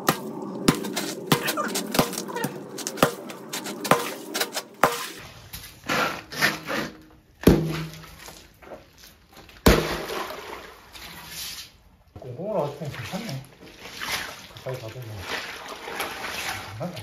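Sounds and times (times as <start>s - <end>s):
hatchet cracking ice: 0.0s - 5.2s
broken ice crunching and scraping: 0.0s - 10.4s
heavy thumps: 6.9s - 8.2s.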